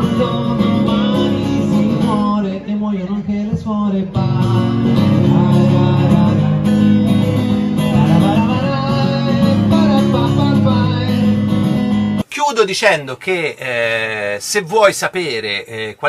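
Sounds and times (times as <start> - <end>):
strummed acoustic guitar: 0.0 - 2.7, 3.5 - 12.2
bass line: 0.0 - 12.2.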